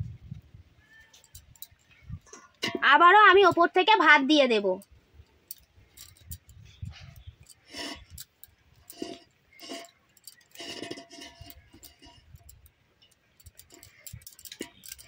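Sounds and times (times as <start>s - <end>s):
spoon scraping a pot: 6.0s - 15.0s.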